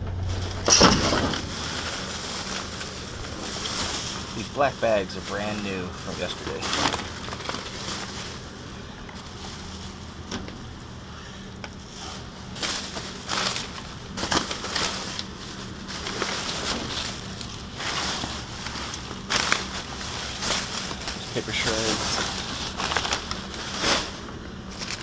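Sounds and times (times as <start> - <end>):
plastic trash bags rustling: 0.0 - 25.0.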